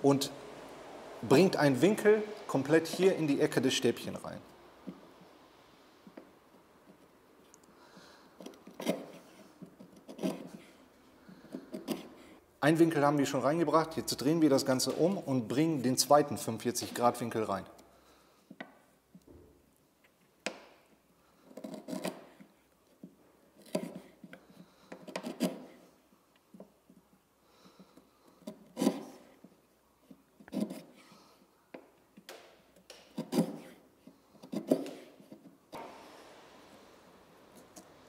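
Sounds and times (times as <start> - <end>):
chisel shaving cuts on wood: 8.4 - 12.3, 21.4 - 22.5, 23.6 - 25.8, 27.9 - 29.4, 30.4 - 31.0, 32.9 - 33.8, 34.4 - 38.0.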